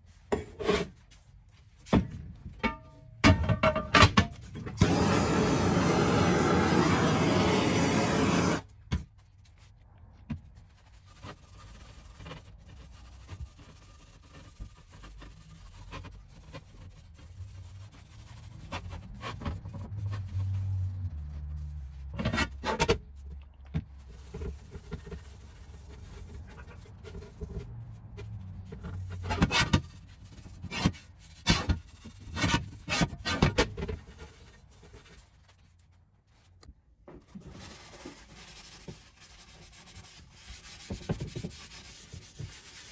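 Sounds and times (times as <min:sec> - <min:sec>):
torch flame hissing: 0:04.8 - 0:08.7.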